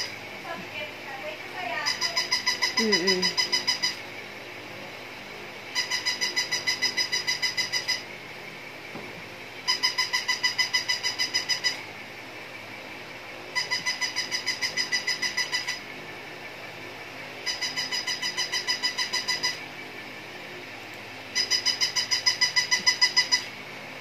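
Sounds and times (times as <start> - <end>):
toy high-pitched electronic beeps: 1.8 - 4.0, 5.7 - 8.1, 9.7 - 11.8, 13.5 - 15.9, 17.4 - 19.6, 21.3 - 23.5.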